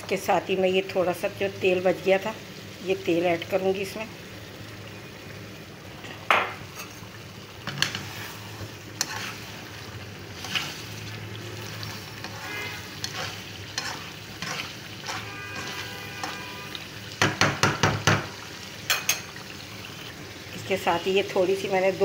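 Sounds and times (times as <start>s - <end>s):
gravy sizzling in a pan: 0.0s - 22.0s
spoon scraping a pan: 6.0s - 11.0s, 11.6s - 17.4s, 18.8s - 20.1s.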